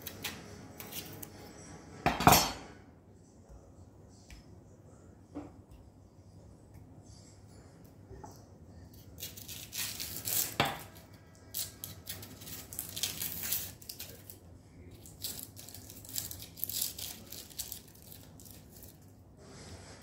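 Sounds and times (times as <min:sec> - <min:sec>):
knife scraping chopping board: 0:00.0 - 0:01.3
papery tearing: 0:09.2 - 0:10.6, 0:11.5 - 0:19.0.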